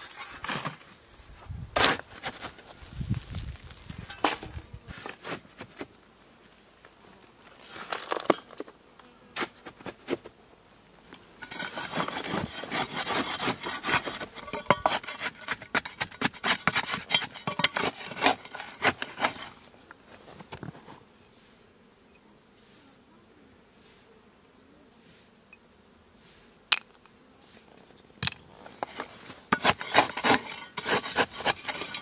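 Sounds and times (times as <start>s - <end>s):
shovel digging soil: 0.0s - 1.0s, 1.8s - 5.9s, 11.4s - 19.7s, 28.6s - 32.0s
stones rattling in metal tub: 11.4s - 19.6s, 28.2s - 32.0s.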